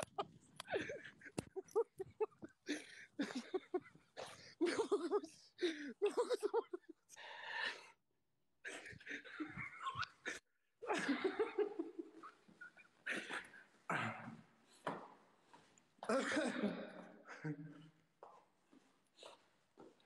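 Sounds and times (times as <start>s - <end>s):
person laughing hard: 0.0s - 3.9s.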